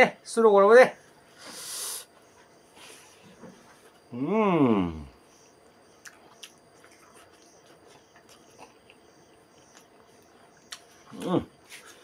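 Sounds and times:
chewing: 6.0s - 12.0s.

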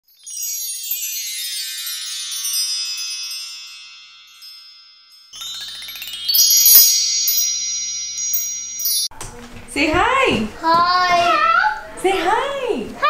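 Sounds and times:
glittering chime shimmer: 0.0s - 9.1s
bright chime hit: 0.2s - 9.1s.

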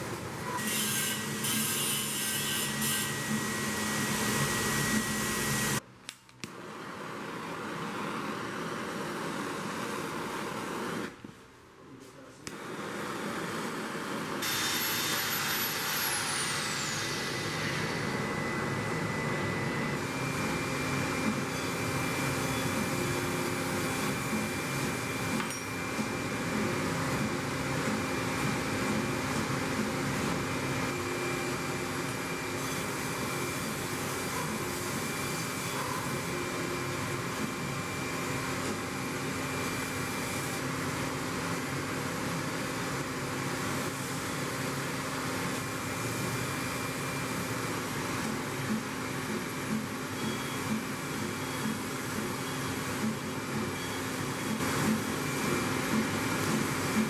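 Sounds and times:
machinery rushing noise: 12.5s - 57.0s.

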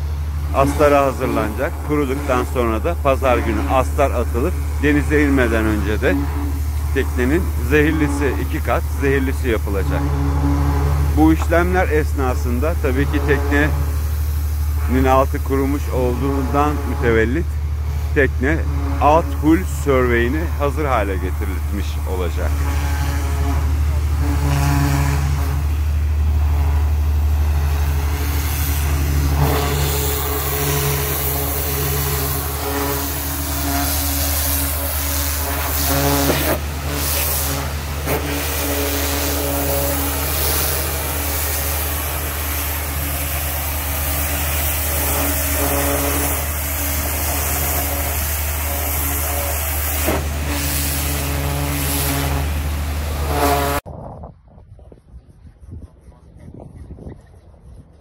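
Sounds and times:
pressure washer motor hum: 0.0s - 53.8s
water jet hissing on hull: 0.0s - 53.8s.

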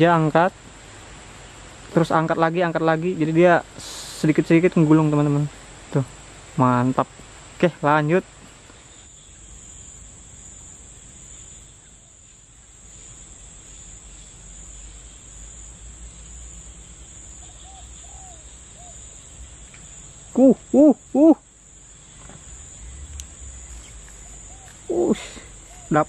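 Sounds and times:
insects chirring: 0.0s - 26.0s
bird hooting: 17.4s - 19.2s, 20.3s - 21.5s, 22.4s - 26.0s.

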